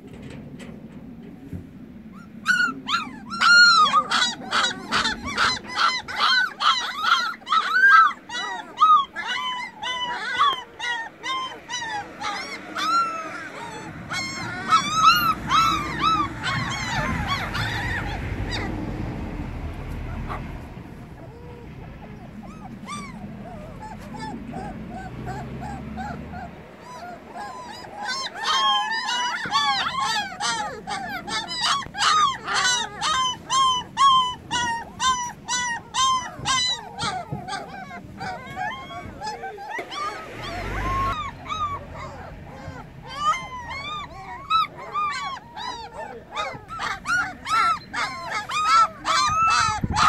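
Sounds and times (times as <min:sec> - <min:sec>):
puppies yelping: 0:00.0 - 0:50.0.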